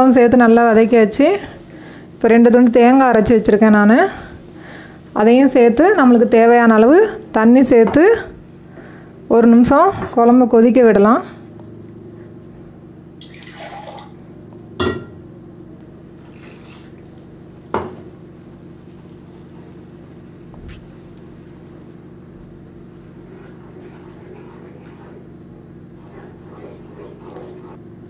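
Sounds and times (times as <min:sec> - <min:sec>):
steady low hum: 0:00.0 - 0:28.0
spatula scraping and sloshing paste: 0:22.8 - 0:27.8.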